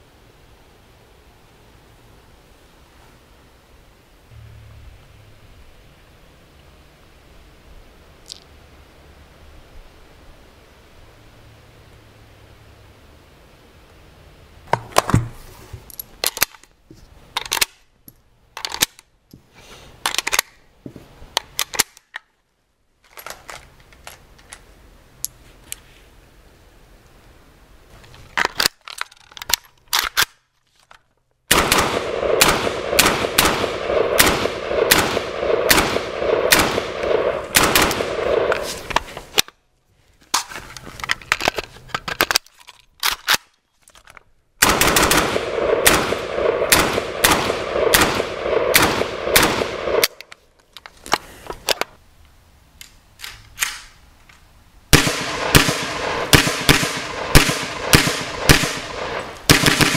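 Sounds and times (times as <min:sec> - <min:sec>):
gunshots with ringing echo: 0:31.5 - 0:38.7, 0:44.6 - 0:50.1, 0:55.0 - 0:59.9
suppressed rifle shots: 0:31.5 - 0:38.9, 0:44.6 - 0:50.2, 0:54.9 - 0:59.9.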